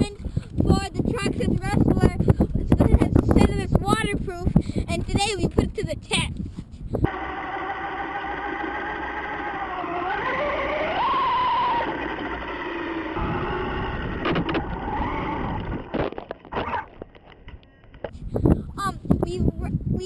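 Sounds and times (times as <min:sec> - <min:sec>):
rc truck motor whine: 0:07.1 - 0:16.0.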